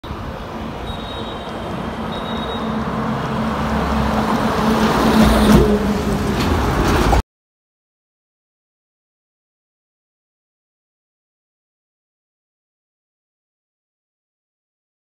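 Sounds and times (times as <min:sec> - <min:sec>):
lorries driving past: 0:00.0 - 0:07.2.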